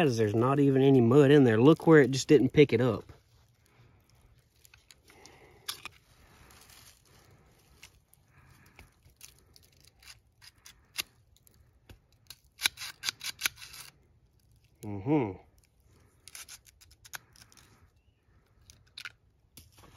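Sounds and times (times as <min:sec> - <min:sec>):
gritty scraping of pistol: 0:09.1 - 0:14.1, 0:16.0 - 0:17.9.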